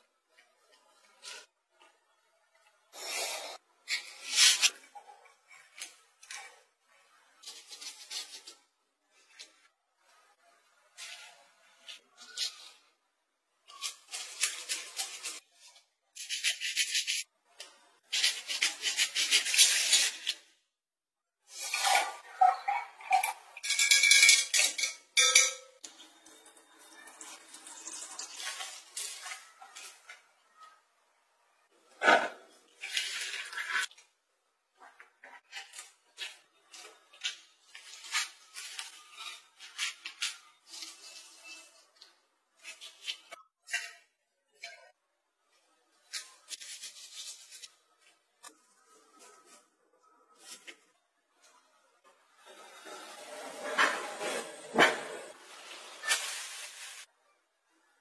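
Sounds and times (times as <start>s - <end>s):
plastic glove crinkling: 56.0s - 57.1s.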